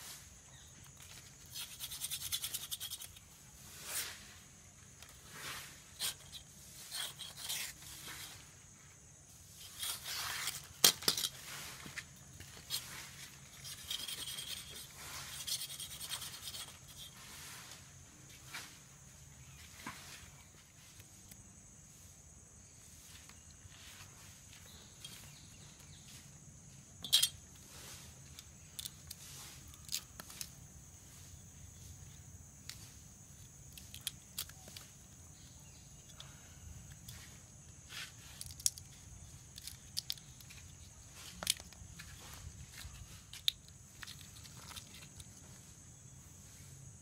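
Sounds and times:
knife scraping coconut husk: 0:00.9 - 0:08.6, 0:09.5 - 0:17.9.

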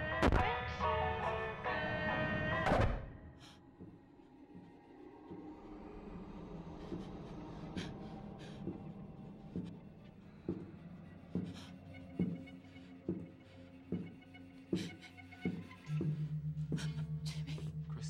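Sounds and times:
low steady drone: 0:03.4 - 0:18.0.

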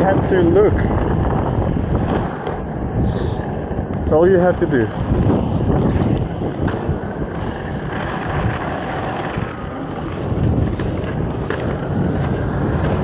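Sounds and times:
skate wheels rolling on pavement: 0:00.0 - 0:13.0
wind buffeting microphone: 0:00.0 - 0:13.0.

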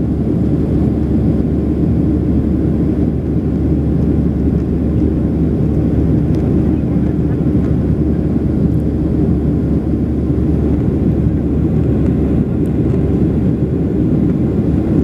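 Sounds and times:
jet airliner cabin noise: 0:00.0 - 0:15.0.

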